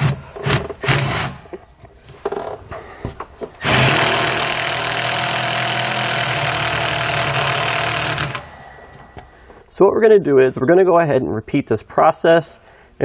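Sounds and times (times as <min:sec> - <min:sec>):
power driver driving screw: 0:00.0 - 0:01.6, 0:03.6 - 0:08.6.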